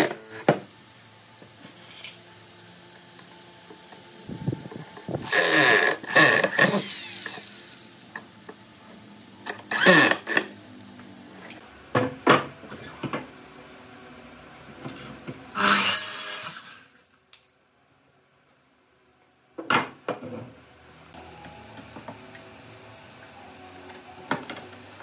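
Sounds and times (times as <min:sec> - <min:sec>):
miter saw cutting a board: 0:05.1 - 0:08.2, 0:09.4 - 0:10.6, 0:15.5 - 0:17.0
cordless drill driving screws: 0:05.2 - 0:07.8, 0:09.5 - 0:10.5.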